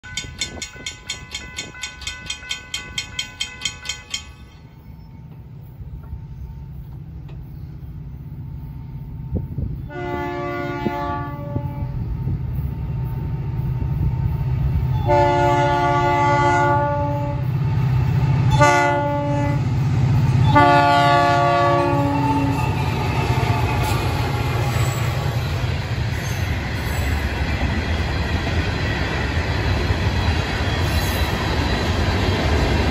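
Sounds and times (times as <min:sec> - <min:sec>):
railroad crossing bell ringing: 0:00.0 - 0:09.9
low locomotive engine rumble: 0:00.0 - 0:32.9
locomotive air horn blasts: 0:09.8 - 0:12.1, 0:14.9 - 0:17.5, 0:18.5 - 0:19.7, 0:20.4 - 0:23.6.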